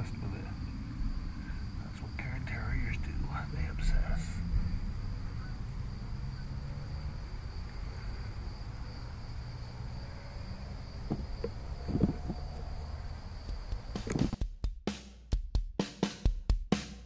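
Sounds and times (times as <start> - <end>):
crickets chirping: 0.0 - 14.4
low rumble: 0.0 - 14.4.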